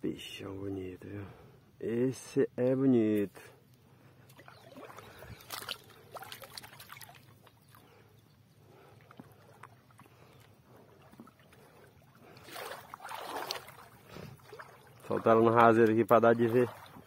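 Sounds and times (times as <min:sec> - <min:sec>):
shallow river water splashing: 0:03.8 - 0:17.0.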